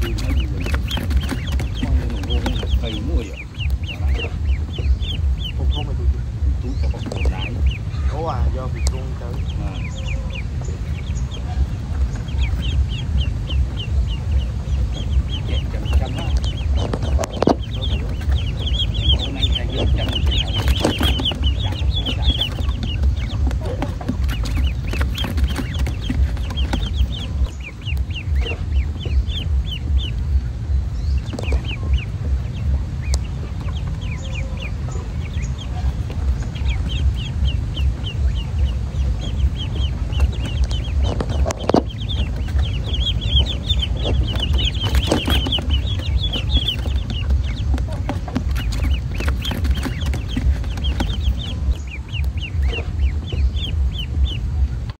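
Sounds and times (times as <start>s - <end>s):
low fluttering rumble: 0.0s - 55.0s
poultry chirping: 0.0s - 55.0s.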